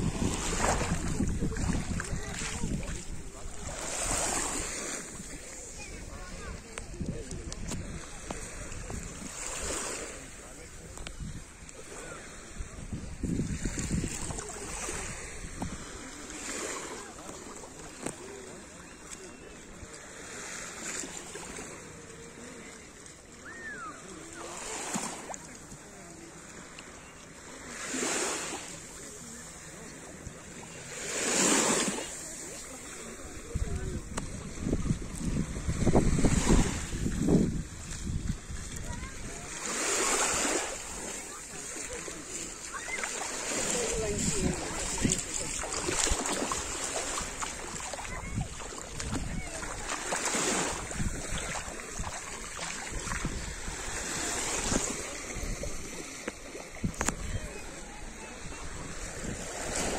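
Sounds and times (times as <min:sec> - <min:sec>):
wind on microphone: 0:00.0 - 0:09.9, 0:10.8 - 0:16.1, 0:33.2 - 0:59.9
gentle waves washing on sand: 0:00.0 - 0:59.9.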